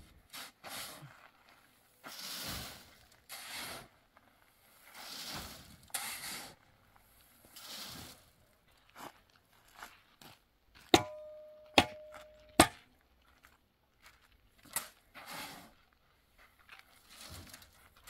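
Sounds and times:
sand scooped and tossed: 0:00.0 - 0:08.5, 0:14.7 - 0:15.9, 0:16.6 - 0:18.0
steel shovel clanging: 0:10.9 - 0:12.8.

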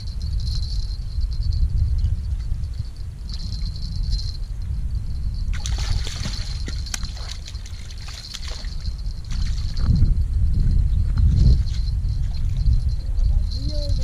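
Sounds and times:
fish splashing in shallow water: 0:05.5 - 0:09.8.

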